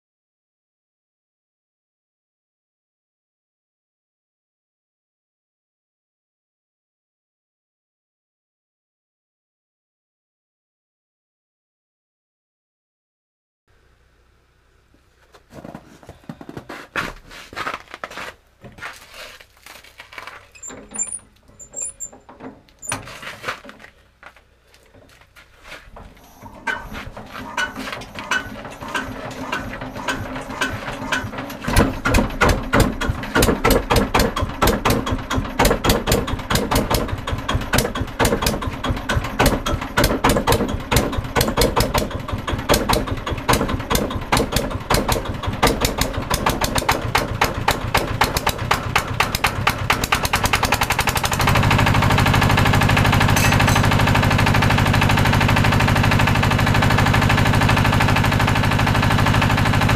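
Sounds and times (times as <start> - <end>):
diesel engine knocking: 27.6 - 59.9.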